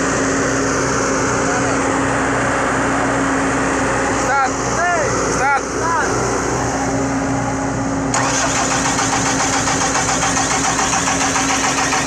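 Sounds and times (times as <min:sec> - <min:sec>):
diesel excavator engine humming: 0:00.0 - 0:12.0
rapid even clatter: 0:08.2 - 0:12.0.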